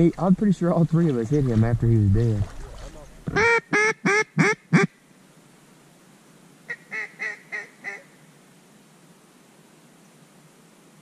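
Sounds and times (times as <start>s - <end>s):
duck call quacking: 3.3s - 4.9s, 6.7s - 8.1s.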